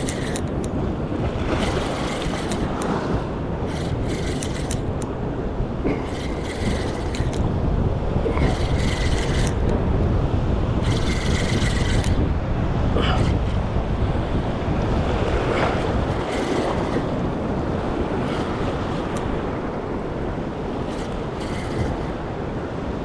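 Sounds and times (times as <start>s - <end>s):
spinning reel cranking: 0.0s - 0.8s, 1.5s - 5.1s, 5.9s - 7.6s, 8.3s - 9.8s, 10.8s - 12.3s, 15.6s - 19.4s, 20.7s - 22.2s
wind noise on microphone: 0.0s - 23.0s.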